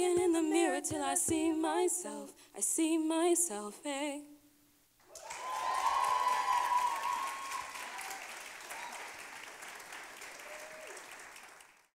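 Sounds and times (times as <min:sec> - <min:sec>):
high cheer: 0:05.0 - 0:11.7
audience applauding: 0:05.0 - 0:11.9.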